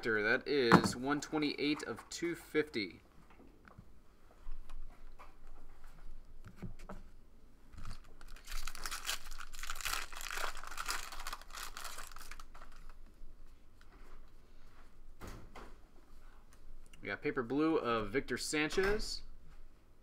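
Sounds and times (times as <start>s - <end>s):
foil wrapper tearing and crinkling: 7.8s - 13.0s.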